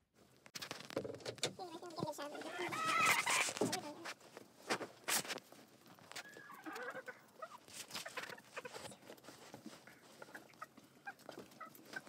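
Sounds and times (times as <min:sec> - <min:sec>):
chickens pecking and scratching: 0:00.2 - 0:12.0
chickens clucking softly: 0:02.1 - 0:04.2, 0:06.1 - 0:09.2, 0:09.8 - 0:12.0.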